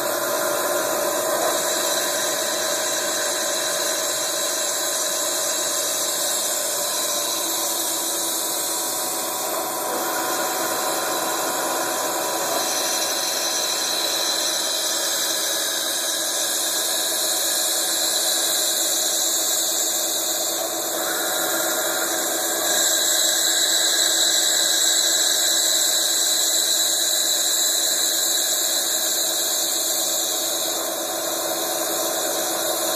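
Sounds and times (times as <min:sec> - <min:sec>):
milling spindle whining: 0:00.0 - 0:32.9
metal cutting squeal: 0:21.0 - 0:24.6.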